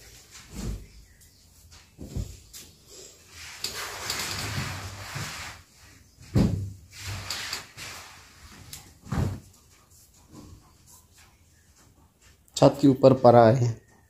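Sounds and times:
scraping rustling noise: 1.6s - 12.4s.

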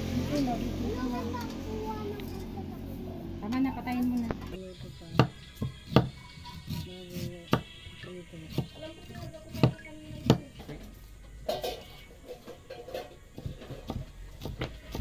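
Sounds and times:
background music: 0.0s - 13.1s
knife chopping on wooden board: 5.1s - 7.7s, 8.5s - 10.6s.

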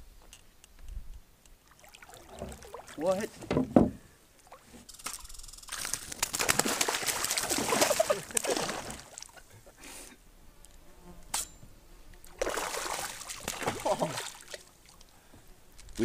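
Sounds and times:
water splashing: 1.6s - 3.4s, 4.4s - 9.5s, 12.2s - 15.1s
fishing reel clicking and buzzing: 4.9s - 5.9s.

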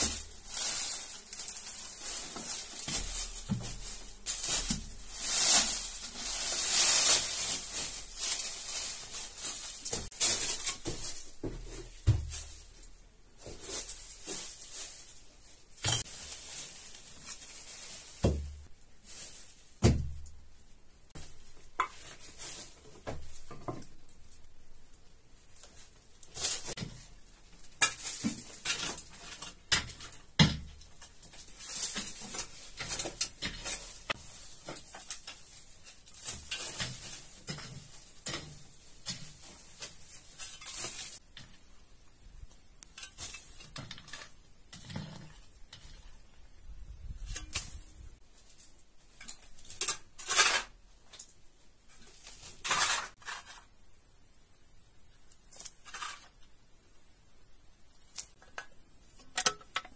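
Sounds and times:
shovel scraping earth and leaves: 0.0s - 19.6s, 30.8s - 50.8s, 52.0s - 53.9s, 55.2s - 56.6s.

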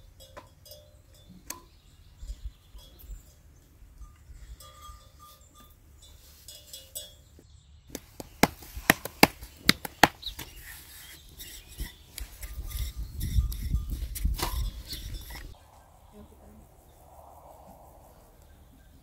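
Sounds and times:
sharp crackles and taps: 7.9s - 10.6s
low rumble: 15.5s - 19.0s.

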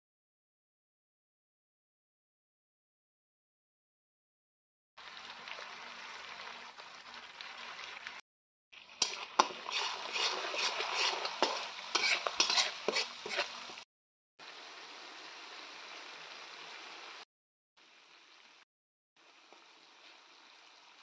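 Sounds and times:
oil and spices sizzling: 5.0s - 8.2s, 8.8s - 18.6s, 19.2s - 21.0s
spatula scraping a wok: 9.0s - 13.8s.

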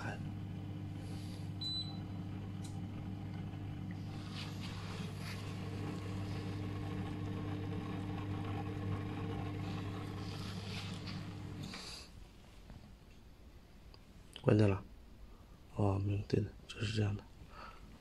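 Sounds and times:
pump humming: 0.0s - 12.0s.

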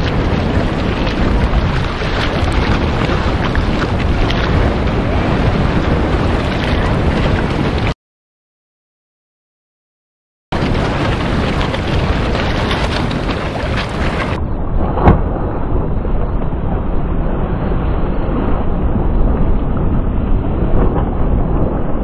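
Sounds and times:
wind buffeting microphone: 0.0s - 8.0s, 10.5s - 22.0s.

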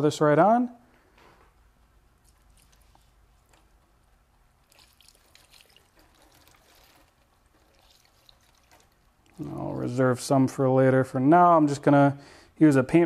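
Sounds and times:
liquid splashing trickle: 2.2s - 10.0s.

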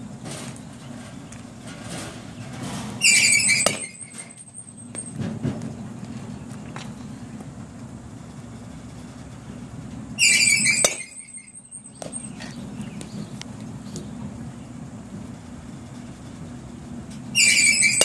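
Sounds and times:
bat ringing: 3.0s - 5.2s, 10.2s - 12.7s, 17.4s - 18.0s
high squeal: 3.0s - 5.2s, 10.2s - 12.6s, 17.3s - 18.0s
bat cracking ball: 3.5s - 4.3s, 10.6s - 11.3s.

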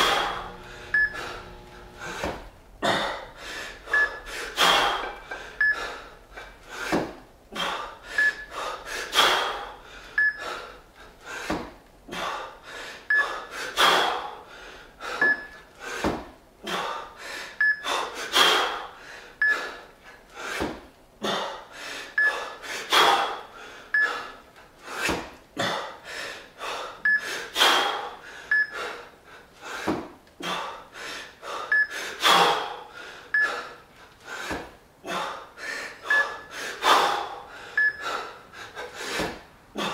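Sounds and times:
man breathing hard: 0.0s - 39.9s
sharp forceful breath bursts: 0.0s - 39.9s
short high beeps: 0.9s - 1.2s.

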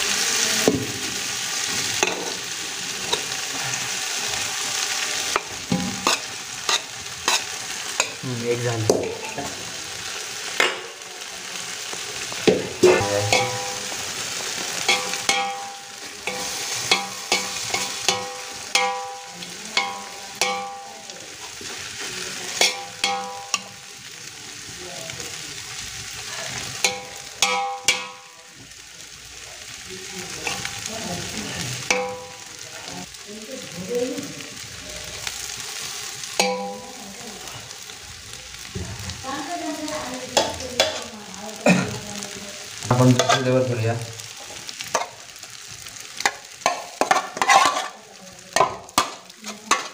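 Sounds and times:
steady sizzle: 0.0s - 49.9s
metal spoon scraping metal pot: 47.0s - 48.0s.

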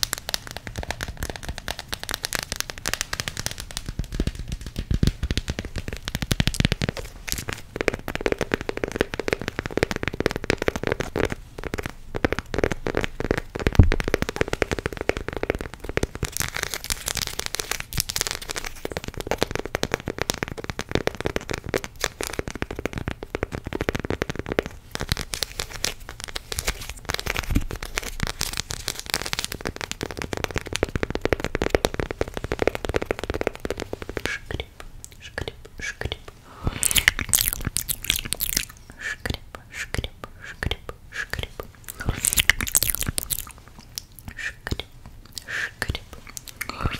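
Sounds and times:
chocolate wrapper crackling: 0.0s - 46.9s
chocolate bar cracking: 35.2s - 39.2s, 40.7s - 46.9s.

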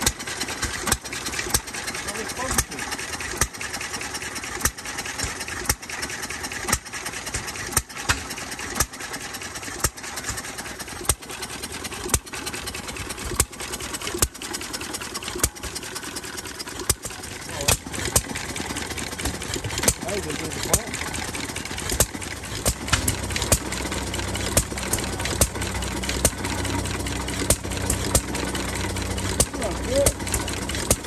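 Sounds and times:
engine mechanical clatter: 0.0s - 31.0s
engine exhaust bangs: 9.8s - 31.0s.

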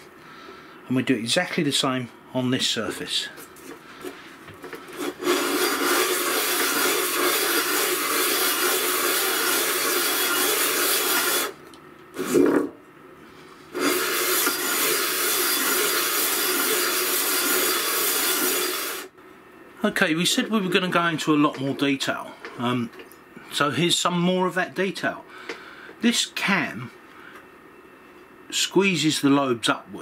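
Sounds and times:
metal rasping on abrasive sheet: 5.0s - 11.6s, 13.8s - 19.1s.

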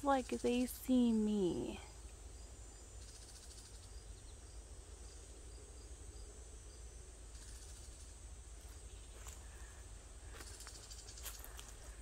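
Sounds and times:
small bird chirping: 0.0s - 5.6s, 7.3s - 8.2s, 8.8s - 11.7s
cicadas droning: 0.0s - 12.0s.

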